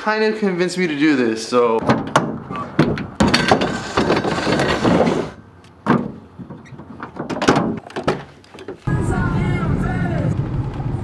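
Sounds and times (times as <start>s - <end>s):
metal clanks and knocks: 1.8s - 8.8s
metal ramp scraping: 2.0s - 7.9s.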